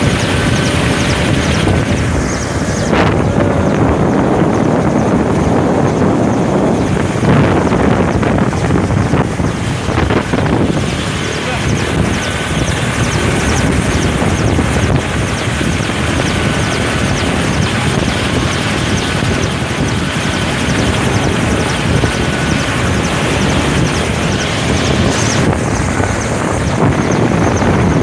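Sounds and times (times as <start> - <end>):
helicopter turbine and rotor: 0.0 - 28.0.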